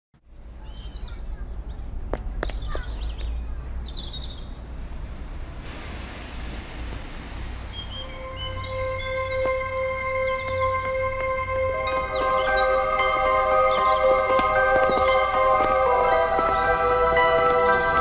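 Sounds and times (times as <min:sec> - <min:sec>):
birds chirping: 0:00.2 - 0:05.6, 0:07.0 - 0:18.0
low rumble: 0:03.4 - 0:18.0
hiss: 0:04.6 - 0:08.8
soft sustained music notes: 0:06.6 - 0:18.0.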